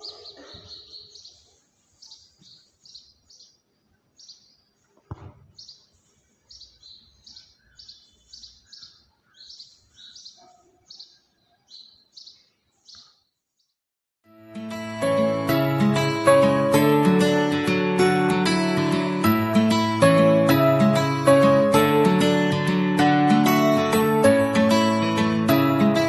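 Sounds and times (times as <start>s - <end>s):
sparrow chirping: 0.0s - 3.6s, 4.2s - 4.8s, 5.6s - 13.2s.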